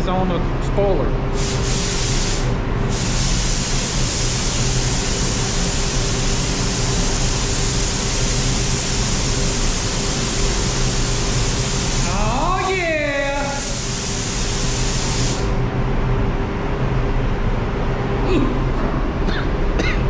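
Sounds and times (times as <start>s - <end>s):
steady low hum: 0.0s - 20.0s
paint spray gun hissing: 1.4s - 15.6s.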